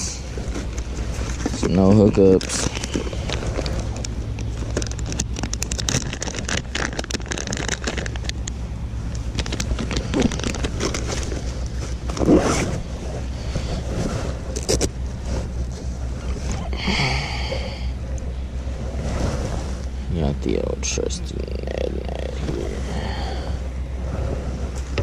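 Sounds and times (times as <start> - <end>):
rain jacket rustling: 0.0 - 8.5, 9.2 - 16.7
tackle clicks and scrapes: 0.0 - 16.7
steady low hum: 0.0 - 25.0.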